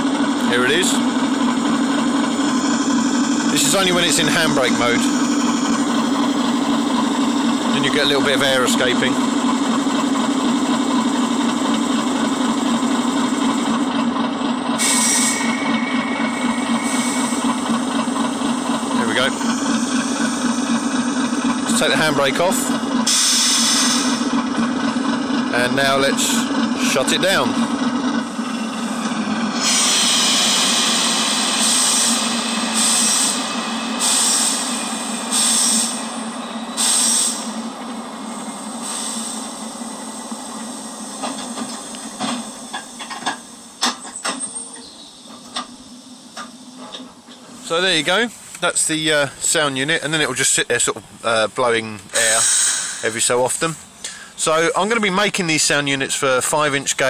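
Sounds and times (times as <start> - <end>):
steady low hum: 0.0 - 23.1
diesel locomotive idling through speaker: 0.0 - 57.0
air hiss: 14.8 - 15.5, 23.1 - 24.2, 29.6 - 36.1, 36.8 - 37.6, 38.8 - 39.7, 52.2 - 53.2.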